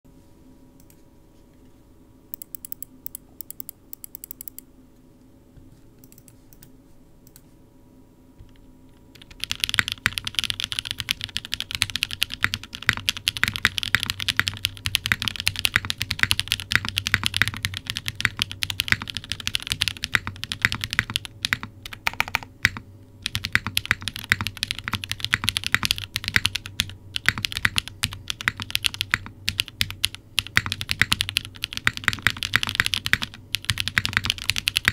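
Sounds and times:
mechanical keyboard typing: 8.4 - 34.9.

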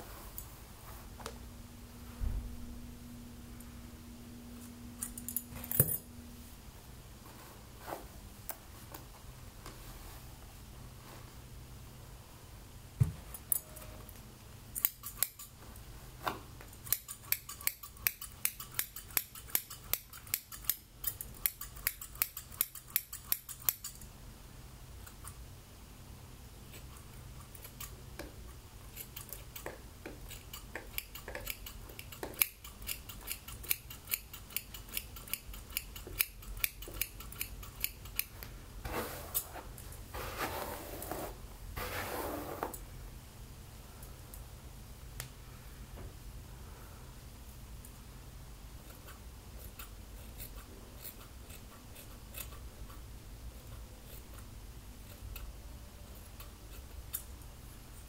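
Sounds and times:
scissors snipping hair: 14.8 - 15.5, 16.8 - 24.0, 30.3 - 38.3, 48.8 - 53.0.

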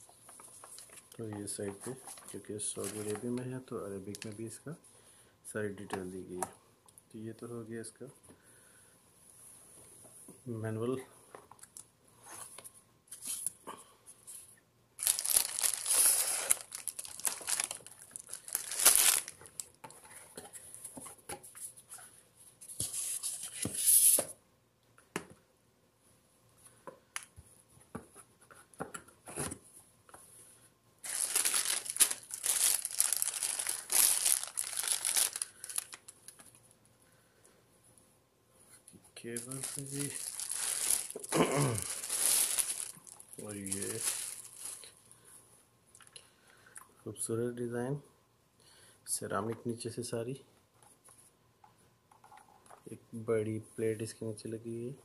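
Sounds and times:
plastic bag crinkling: 2.1 - 3.4, 15.0 - 19.8, 31.0 - 36.4, 39.3 - 45.0.

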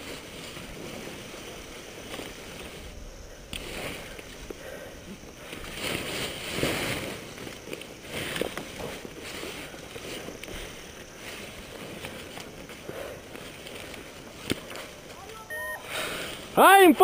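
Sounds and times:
nylon canopy rustling: 0.0 - 3.0, 5.4 - 15.4.

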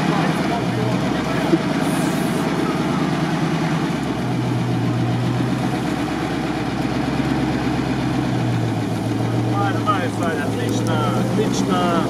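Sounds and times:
truck engine running at low revs: 0.0 - 12.0.

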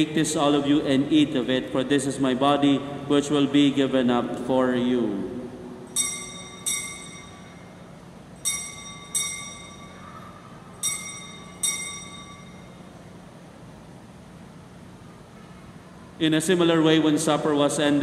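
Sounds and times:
bell ringing: 5.9 - 13.0.

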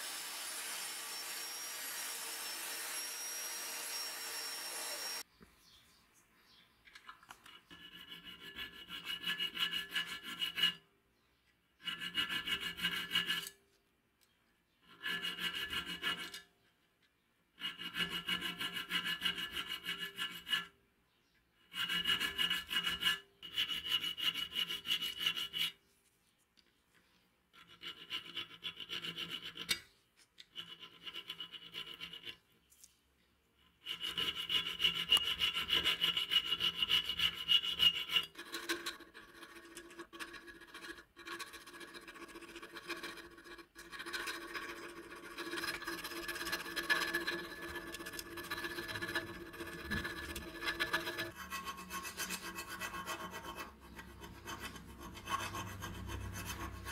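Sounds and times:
drill brush wheel whirring: 0.0 - 5.2
hand file rasping on steel: 0.0 - 5.2, 7.5 - 10.9, 11.8 - 13.6, 14.8 - 16.5, 17.5 - 20.8, 21.6 - 25.8, 27.5 - 32.5, 33.7 - 56.9.

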